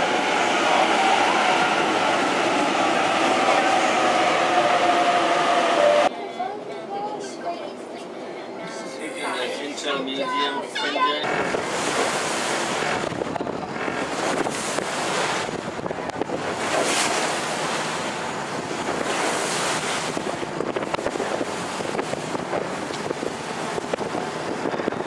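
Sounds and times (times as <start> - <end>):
choppy water washing: 11.2 - 25.0
wind buffeting microphone: 11.2 - 25.0.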